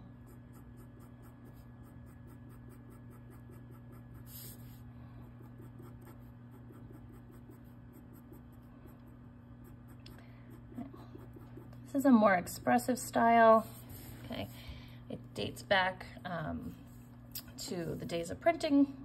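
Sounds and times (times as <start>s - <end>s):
steady low hum: 0.0s - 19.0s
marker scratching on paper: 0.2s - 4.8s, 5.4s - 11.8s.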